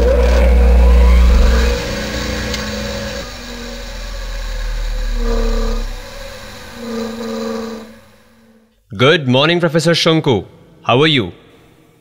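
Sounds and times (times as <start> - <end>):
humming tones shifting in pitch: 0.0 - 8.7
mechanical whirring and rumbling: 0.0 - 8.7.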